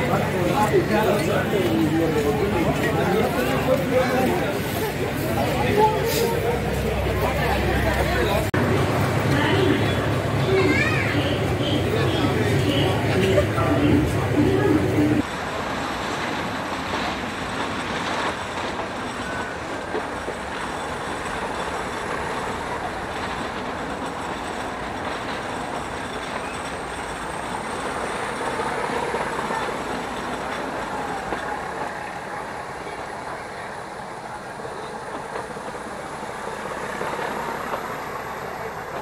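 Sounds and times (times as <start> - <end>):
train coaches rumbling and rattling: 0.0 - 39.0.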